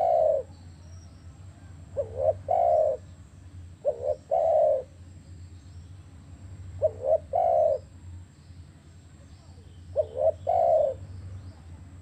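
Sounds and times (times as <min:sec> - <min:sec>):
dove cooing: 0:00.0 - 0:00.5, 0:01.6 - 0:03.1, 0:03.8 - 0:05.0, 0:06.8 - 0:07.9, 0:09.9 - 0:11.1.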